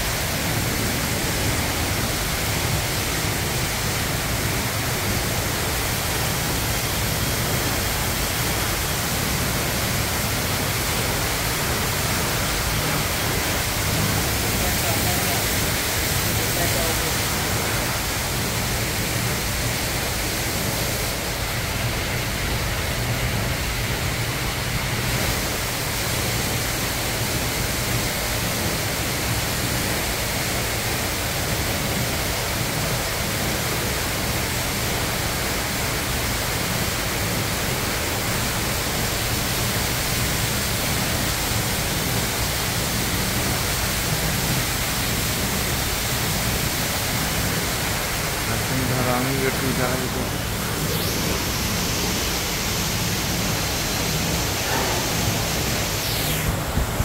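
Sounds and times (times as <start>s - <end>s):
steady rushing noise: 0.0s - 57.0s.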